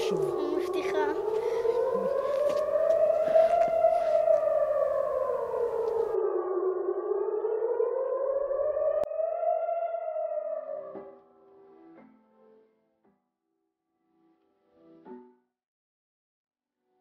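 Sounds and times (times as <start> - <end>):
siren-like wailing tone: 0.0 - 11.2.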